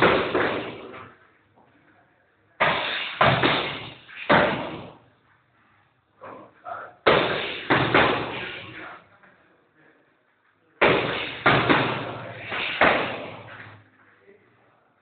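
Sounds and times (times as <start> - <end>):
boxing gloves smacking focus mitts: 10.8 - 13.8.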